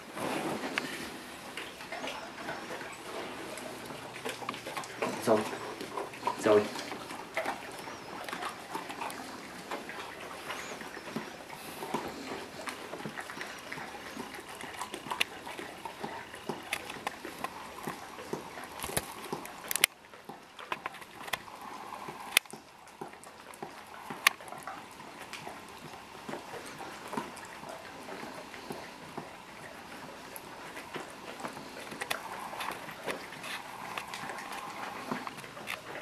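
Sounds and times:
dog lapping ice cream: 0:00.0 - 0:36.0.

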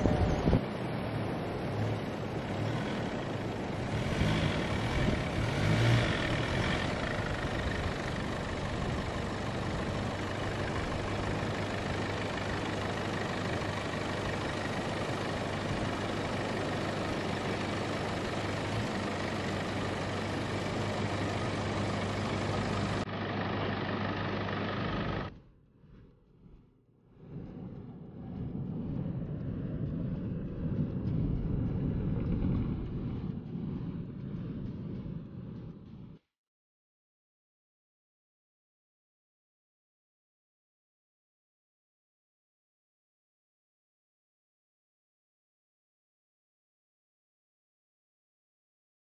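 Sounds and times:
vehicle engine idling: 0:00.0 - 0:36.2.

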